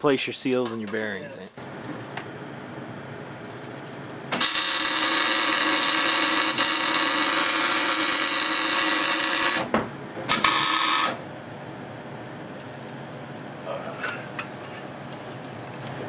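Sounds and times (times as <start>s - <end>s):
welder arc crackling: 4.3s - 9.7s, 10.3s - 11.2s.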